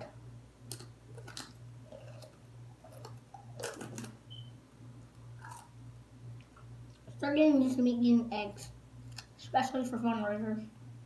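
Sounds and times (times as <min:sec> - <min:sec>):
low electrical hum: 0:00.0 - 0:11.0
person chewing: 0:00.7 - 0:04.1, 0:05.3 - 0:05.8.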